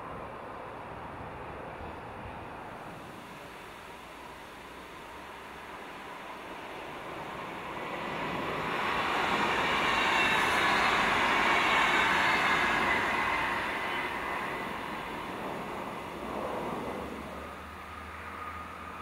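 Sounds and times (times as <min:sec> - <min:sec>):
electric train passing: 0:00.0 - 0:19.0.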